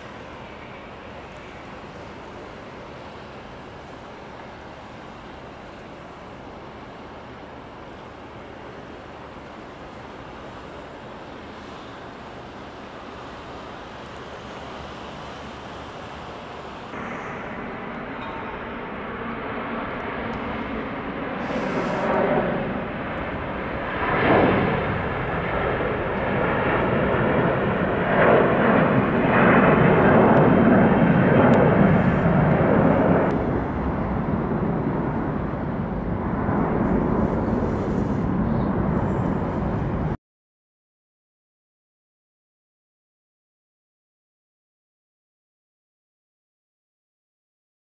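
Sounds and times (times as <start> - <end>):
jet engines at takeoff: 0.0 - 40.2.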